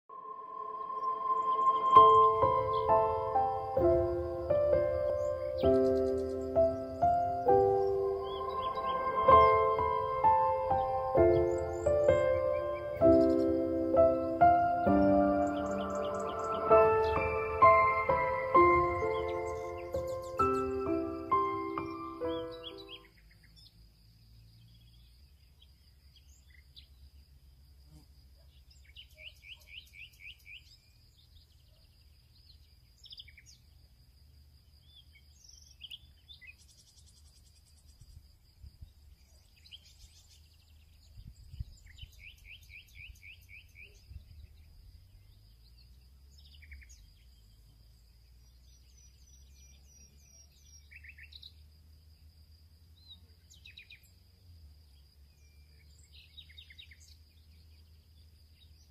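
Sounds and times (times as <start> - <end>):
high-pitched whine: 0.0 - 5.8, 6.6 - 22.4
low hum: 0.0 - 22.5
birdsong chirps: 0.0 - 27.4, 28.3 - 58.9.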